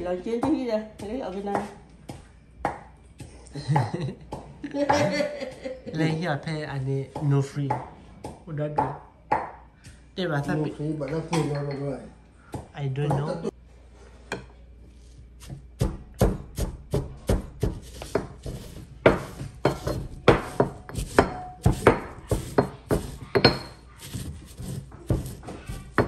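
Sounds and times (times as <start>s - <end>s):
stone pestle pounding in mortar: 15.8s - 26.0s.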